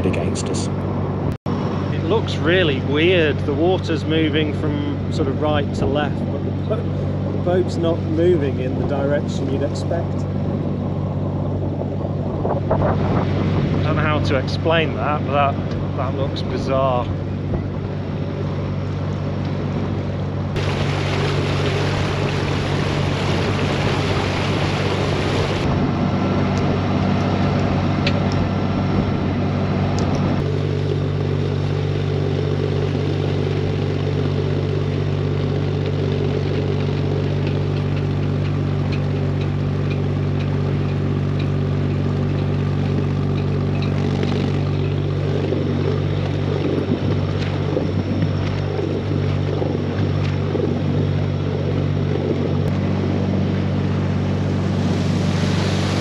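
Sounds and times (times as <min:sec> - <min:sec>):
boat engine humming: 0:00.0 - 0:56.0
loud rushing hiss: 0:54.8 - 0:56.0.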